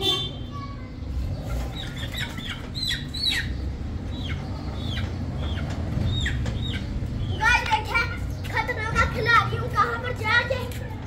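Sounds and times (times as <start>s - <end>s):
chick calling: 0.6s - 7.6s.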